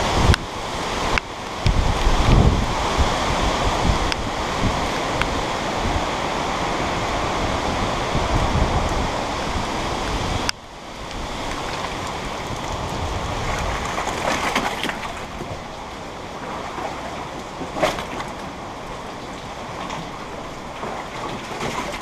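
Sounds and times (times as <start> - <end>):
steady rain: 0.0 - 14.3, 15.0 - 17.7, 18.5 - 21.3
wind noise: 0.0 - 22.0.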